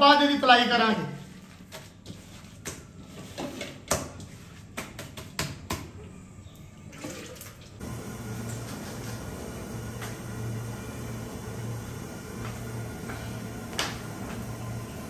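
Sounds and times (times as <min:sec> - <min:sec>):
steady low hum: 0:07.8 - 0:15.0.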